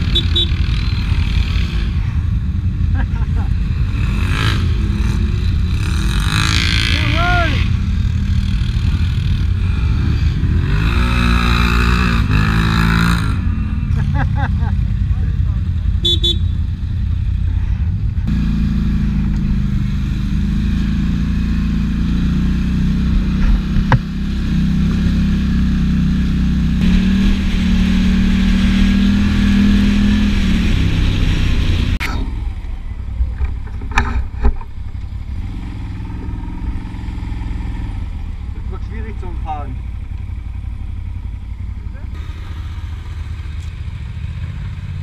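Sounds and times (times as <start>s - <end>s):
quad bike engine running: 0.0s - 45.0s
sharp knocks: 23.1s - 24.1s.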